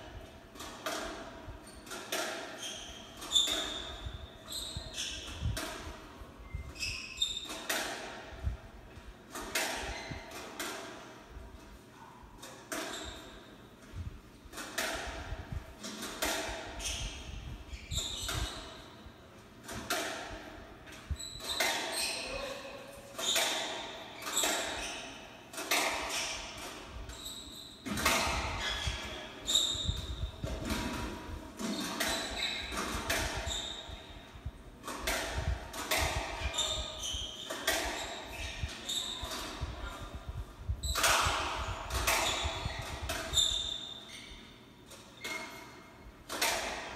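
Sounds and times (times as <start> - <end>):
squash ball struck and hitting walls: 0.1 - 11.4, 12.4 - 22.5, 23.2 - 44.4, 45.2 - 46.9
shoes squeaking on wooden floor: 2.6 - 5.6, 6.4 - 7.6, 31.6 - 32.8, 36.0 - 40.0.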